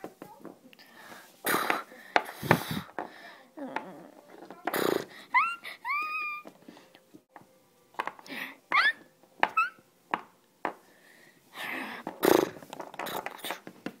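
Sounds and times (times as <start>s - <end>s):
person making rising squeals: 5.3s - 6.5s, 8.7s - 9.8s.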